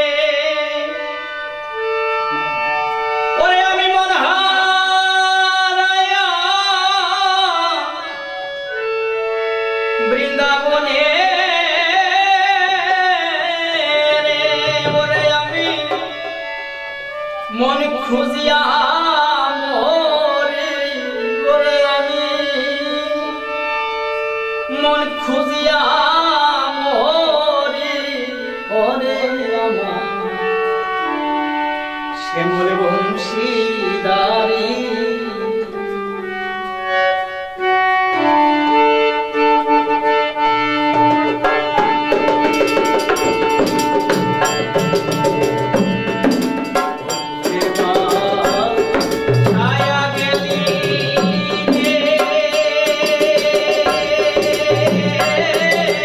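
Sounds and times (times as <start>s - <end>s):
harmonium chords: 0.0s - 56.0s
barrel drum rhythm: 14.5s - 16.6s, 40.9s - 56.0s
man singing folk song: 47.5s - 56.0s.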